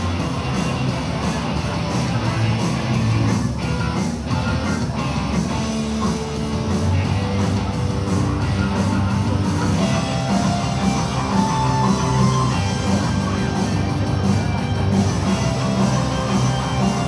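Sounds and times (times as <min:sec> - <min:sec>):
rock music: 0:00.0 - 0:17.0.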